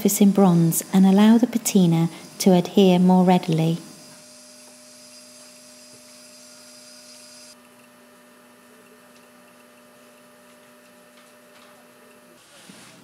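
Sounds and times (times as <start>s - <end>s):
faint electrical hum: 0.0s - 13.0s
light hiss: 0.8s - 7.6s.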